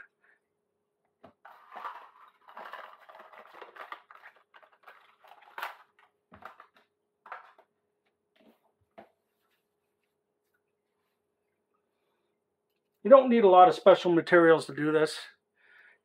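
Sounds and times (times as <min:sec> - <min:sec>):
hands handling small objects: 0:01.2 - 0:07.7.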